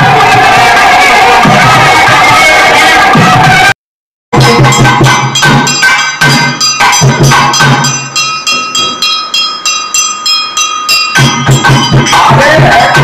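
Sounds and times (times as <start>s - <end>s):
ringing metallic strikes: 4.4s - 13.0s.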